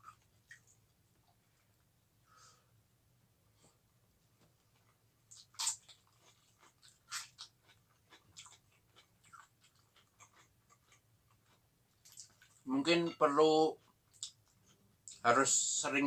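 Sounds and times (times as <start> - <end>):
crunching and chewing: 4.7 - 12.7, 13.8 - 15.2.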